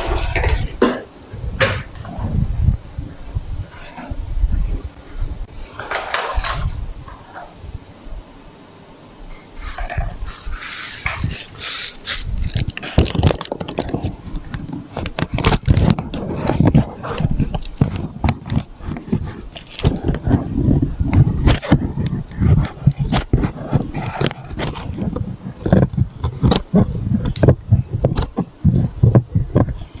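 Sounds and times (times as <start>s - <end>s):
rubbing and knocking: 9.6s - 30.0s
plastic piping bag crinkling: 10.2s - 20.3s.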